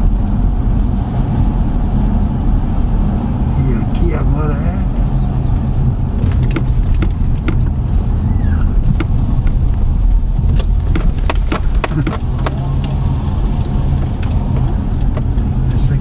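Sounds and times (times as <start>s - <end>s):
road and engine rumble: 0.0s - 16.0s
sharp clicks and knocks: 6.2s - 8.1s, 8.8s - 15.8s.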